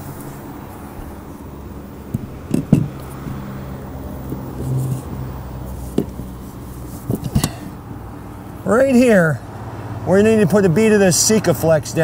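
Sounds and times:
low motor hum: 0.0s - 8.7s
sharp knocks and clicks: 2.1s - 3.6s, 5.9s - 6.2s, 7.0s - 7.7s.

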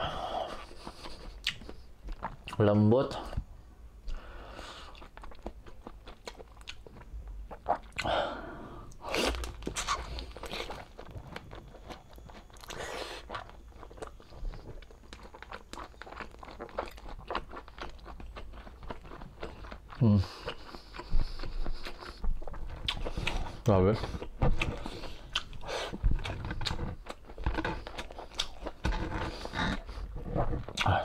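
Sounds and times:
person chewing: 0.0s - 2.6s, 4.0s - 31.0s
mouth clicks and smacks: 0.6s - 2.6s, 30.6s - 31.0s.

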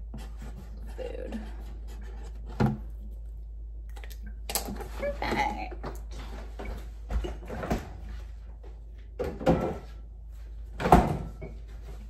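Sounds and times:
refrigerator door opening and shutting: 6.5s - 8.1s, 9.2s - 9.9s, 10.7s - 11.7s.

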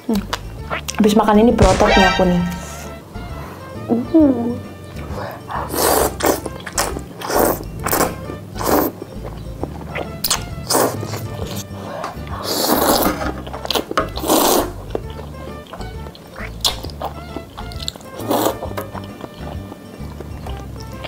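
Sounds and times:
background music: 0.0s - 21.0s
person slurping noodles: 5.2s - 8.0s, 8.6s - 9.0s, 9.9s - 13.2s, 14.2s - 14.8s, 18.1s - 18.8s.

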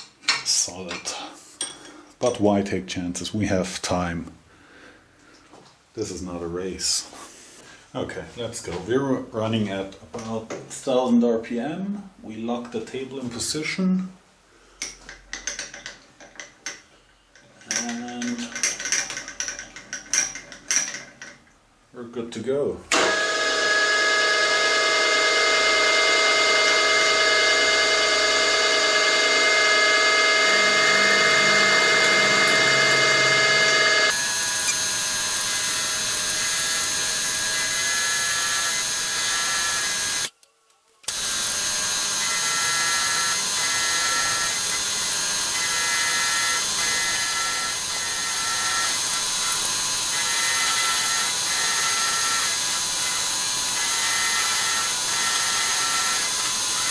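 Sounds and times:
milling machine whining: 22.9s - 40.3s, 41.1s - 56.9s.

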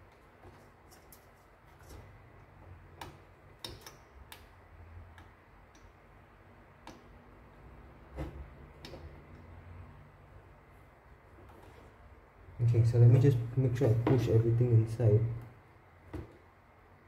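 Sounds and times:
small clicks and taps: 2.9s - 6.0s, 6.8s - 7.1s.

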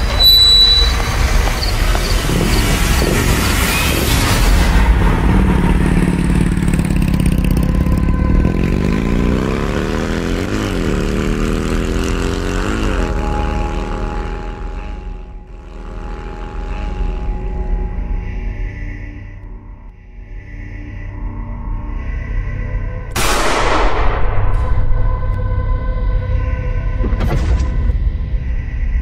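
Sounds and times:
vehicle engine revving: 0.9s - 18.2s.

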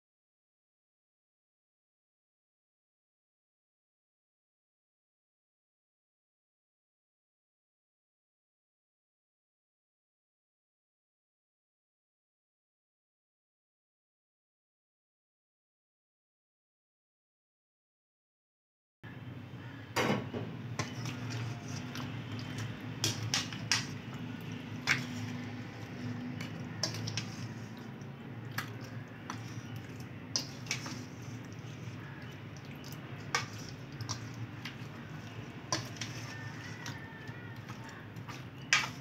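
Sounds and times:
spoon scraping steel bowl: 20.7s - 39.0s
wet squelching: 20.8s - 39.0s.

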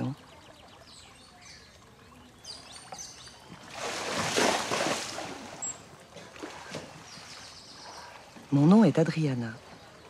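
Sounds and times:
birds chirping: 0.0s - 10.0s
water splash: 3.5s - 7.1s.

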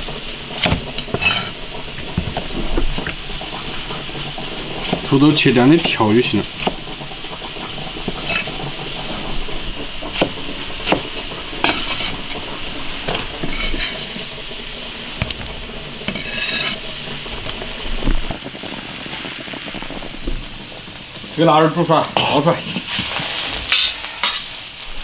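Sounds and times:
water boiling: 0.0s - 25.0s
blade scraping: 16.1s - 16.9s.

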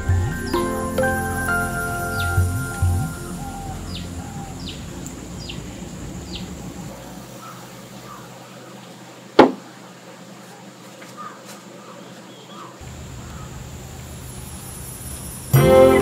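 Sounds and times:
background music: 0.0s - 6.9s, 15.5s - 16.0s
bird chirping: 0.0s - 8.3s
sharp knock: 9.4s - 9.6s.

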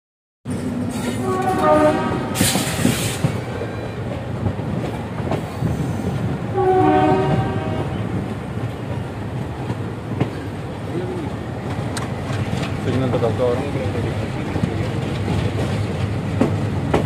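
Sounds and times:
moving train rumble and clatter: 0.4s - 17.0s
locomotive horn blasts: 1.2s - 2.5s, 6.5s - 8.2s.

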